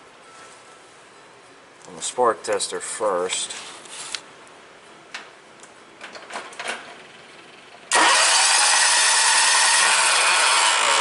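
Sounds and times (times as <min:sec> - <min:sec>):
electric starter cranking engine: 0:07.9 - 0:11.0.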